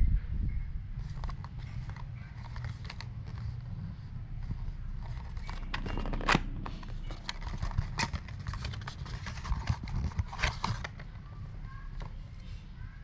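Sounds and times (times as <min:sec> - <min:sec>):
packaging crinkling and rustling: 0:01.0 - 0:03.7, 0:04.4 - 0:12.2
sharp packaging crackles: 0:04.7 - 0:11.3.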